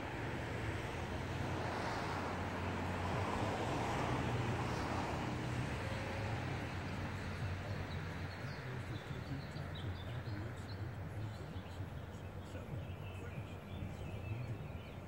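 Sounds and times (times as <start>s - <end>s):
vehicle engine idling: 0.0s - 15.0s
small birds chirping: 5.8s - 15.0s.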